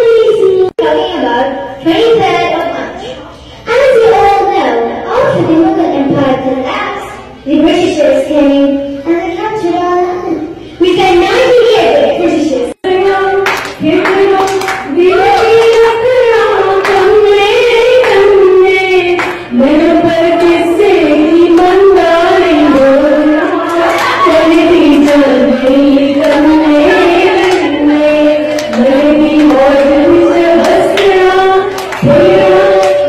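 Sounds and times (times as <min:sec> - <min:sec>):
woman singing into a microphone: 0:12.5 - 0:33.0.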